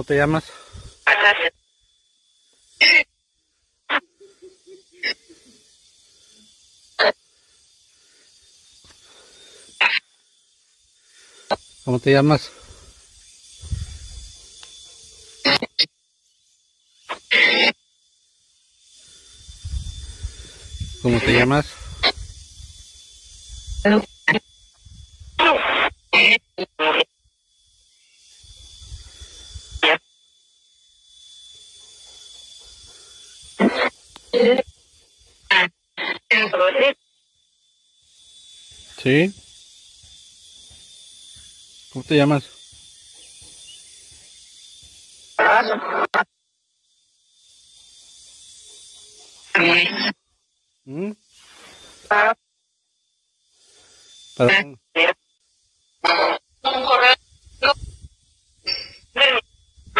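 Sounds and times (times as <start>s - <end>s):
choppy radio voice fragments: 0.0s - 1.5s, 2.8s - 3.1s, 21.0s - 22.2s, 25.4s - 27.1s, 33.6s - 34.6s, 35.5s - 37.0s, 45.4s - 46.2s, 49.5s - 50.1s, 54.4s - 55.2s, 56.0s - 57.8s, 58.7s - 59.4s
faint warbling radio fragments: 0.0s - 1.5s, 21.0s - 22.2s, 25.4s - 27.1s, 45.4s - 46.2s
static bursts: 0.0s - 1.8s, 2.7s - 10.3s, 11.0s - 15.9s, 16.9s - 17.8s, 19.0s - 27.2s, 28.3s - 30.1s, 32.9s - 34.7s, 35.3s - 37.0s, 44.9s - 46.3s, 49.4s - 50.2s, 54.4s - 55.3s, 56.0s - 58.0s, 58.6s - 59.9s
thin high whine: 0.0s - 52.4s, 53.4s - 59.9s
electronic hiss: 0.0s - 59.9s.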